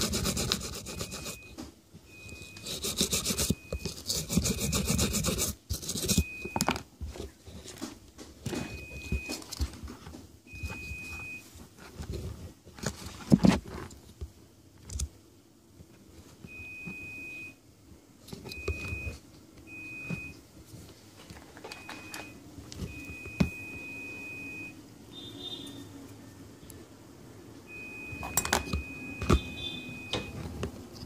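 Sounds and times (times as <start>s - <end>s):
continuity tester beeping: 27.7s - 30.4s.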